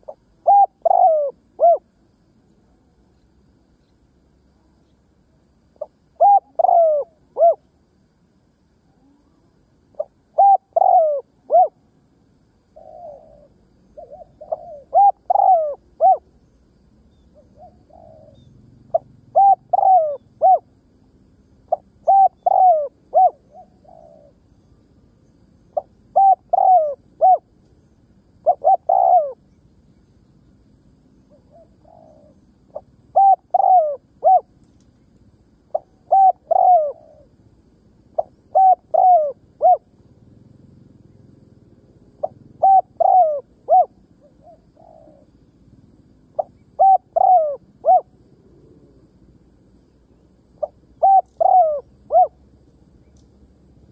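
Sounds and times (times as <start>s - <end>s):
dove cooing: 0.0s - 1.9s, 5.8s - 7.7s, 8.9s - 11.8s, 12.7s - 16.4s, 17.3s - 20.8s, 21.7s - 24.5s, 25.7s - 27.5s, 28.4s - 29.4s, 31.3s - 34.5s, 35.7s - 37.4s, 38.1s - 40.5s, 42.2s - 45.4s, 46.3s - 49.1s, 50.6s - 52.4s.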